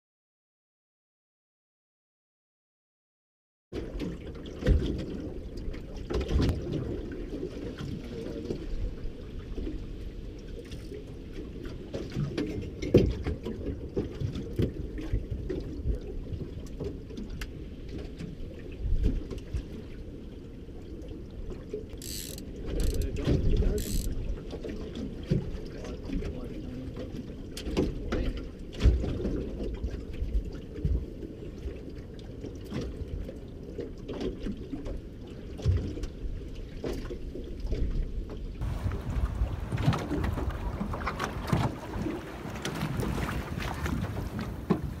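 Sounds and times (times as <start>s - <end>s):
low rumble: 38.6s - 41.5s.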